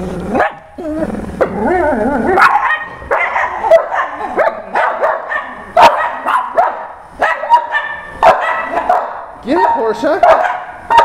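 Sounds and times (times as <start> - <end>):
dogs growling: 0.0 - 6.4
dog barking: 0.4 - 0.7, 2.4 - 11.0.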